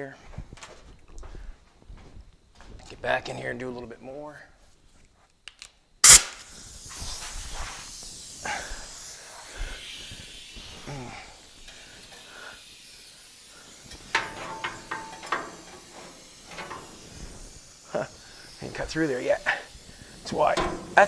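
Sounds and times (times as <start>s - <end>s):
hacksaw rasping on steel: 14.0s - 17.0s.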